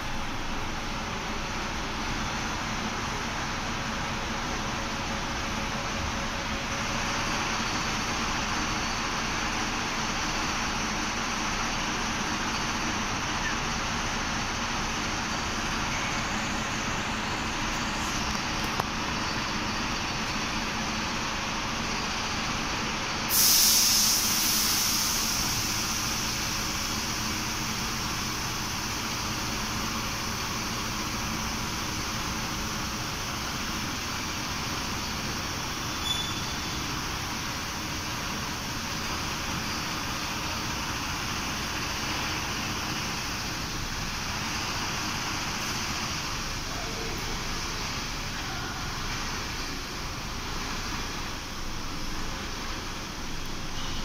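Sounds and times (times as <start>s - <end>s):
compressed air hiss: 23.3s - 26.4s.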